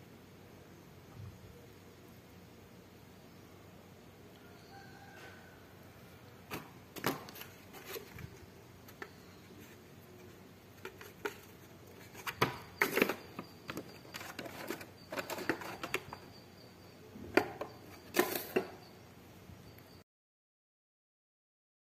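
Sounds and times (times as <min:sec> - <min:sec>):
plastic trays clicking and tapping: 0:10.2 - 0:16.2.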